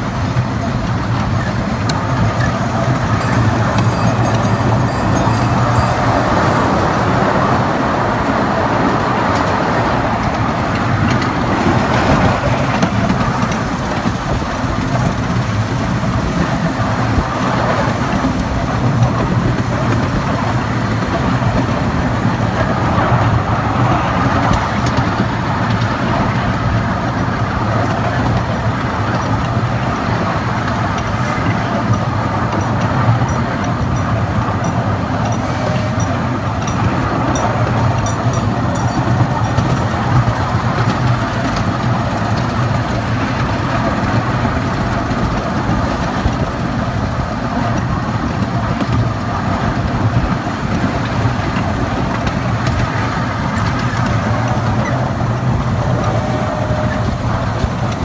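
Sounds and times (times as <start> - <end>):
miniature train rumbling and rattling: 0.0 - 58.0.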